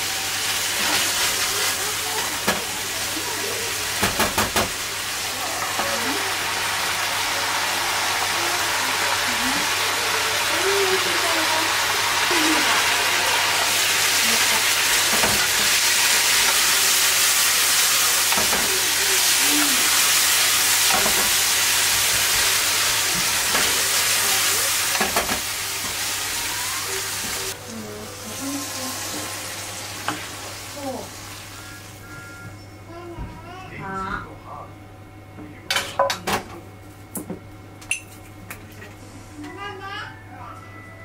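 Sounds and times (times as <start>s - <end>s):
food sizzling in frying pan: 0.0s - 32.1s.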